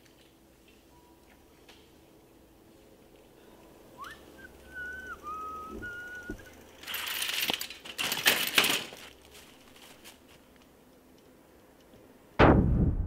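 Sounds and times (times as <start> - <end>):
person whistling: 4.0 - 6.5
rough scraping and crunching: 6.9 - 10.5.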